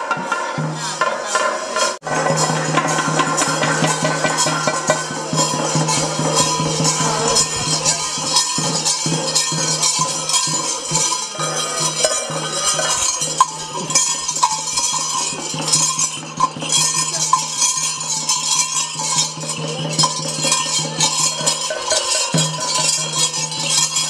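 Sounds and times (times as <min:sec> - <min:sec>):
drums beaten fast: 0:00.0 - 0:24.0
hand cymbals clanging: 0:00.0 - 0:24.0.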